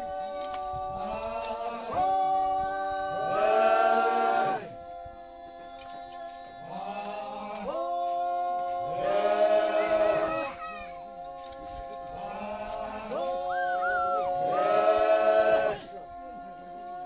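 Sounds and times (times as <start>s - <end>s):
group singing without instruments: 0.0s - 17.0s.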